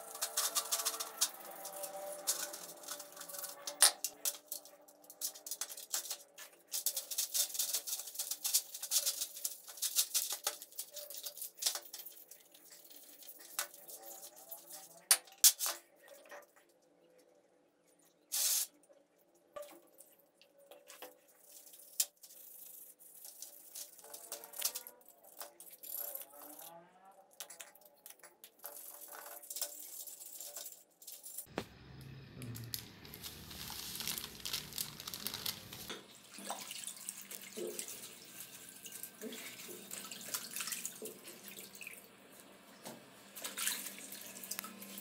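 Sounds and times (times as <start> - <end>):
brush scrubbing wet parts: 0.0 - 15.1, 20.8 - 26.7.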